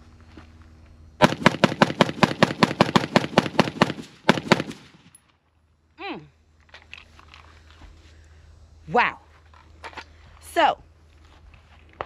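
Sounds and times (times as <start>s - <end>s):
rifle gunshots: 1.2s - 5.1s.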